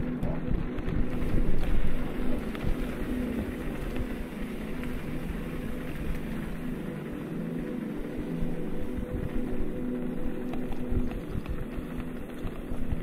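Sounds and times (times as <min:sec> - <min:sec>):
bike tyres rattling over cobblestones: 0:00.0 - 0:13.0.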